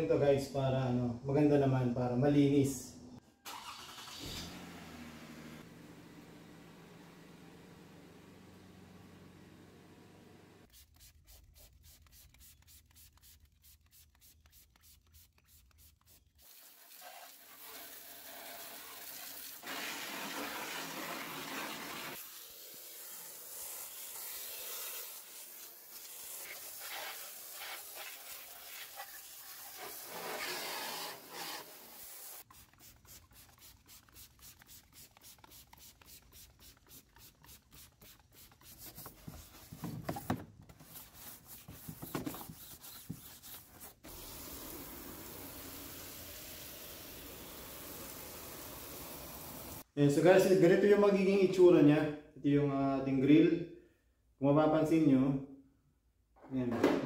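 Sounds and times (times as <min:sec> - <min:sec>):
hose water spray hissing: 0:10.6 - 0:39.1, 0:43.2 - 0:49.8.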